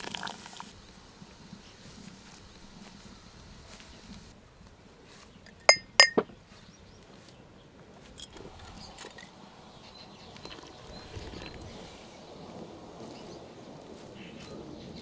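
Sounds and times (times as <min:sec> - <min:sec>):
glass jars clinking: 0:05.5 - 0:06.3.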